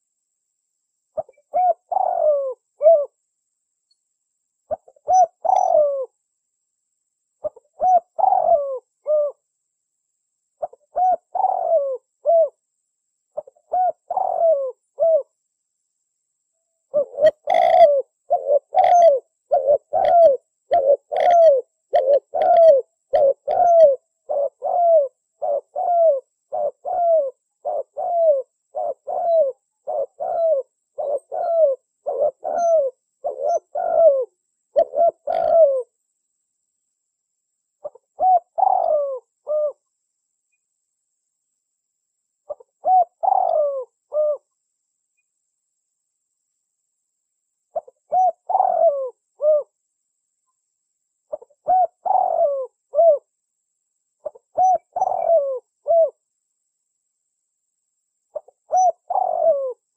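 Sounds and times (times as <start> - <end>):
dove cooing: 1.2 - 3.2, 4.7 - 6.2, 7.4 - 9.4, 10.6 - 12.6, 13.4 - 15.4, 16.9 - 35.9, 37.8 - 39.8, 42.5 - 44.5, 47.7 - 49.8, 51.3 - 53.3, 54.2 - 56.2, 58.3 - 59.9.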